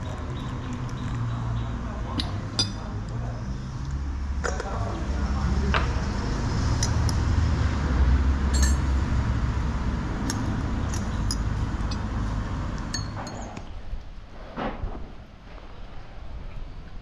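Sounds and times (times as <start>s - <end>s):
teaspoon clinking against china: 8.6s - 8.9s, 12.8s - 13.5s.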